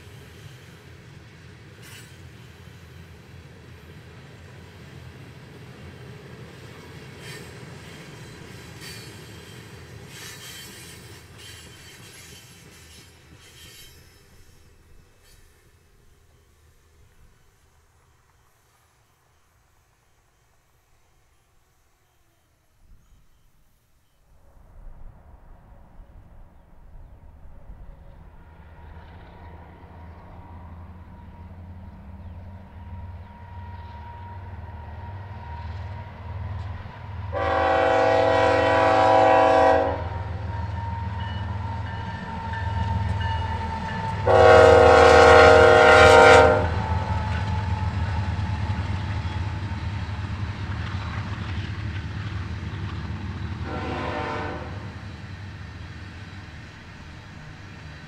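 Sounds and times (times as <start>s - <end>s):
diesel locomotives rumbling: 0.0s - 20.3s, 24.4s - 58.0s
train air horn blasts: 37.3s - 48.8s, 53.6s - 55.0s.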